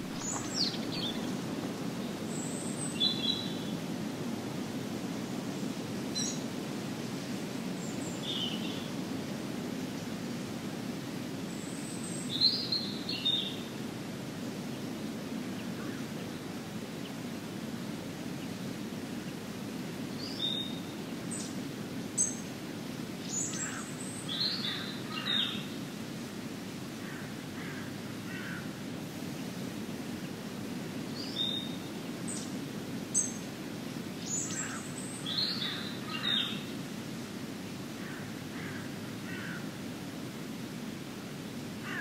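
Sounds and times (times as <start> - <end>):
wild birds calling: 0.0 - 3.7, 23.3 - 25.8, 27.0 - 28.8, 34.2 - 36.8, 37.9 - 39.8, 41.8 - 42.0.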